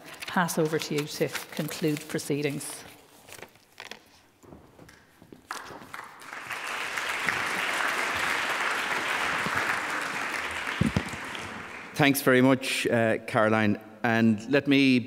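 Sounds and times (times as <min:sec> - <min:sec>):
audience applause: 0:05.5 - 0:12.0.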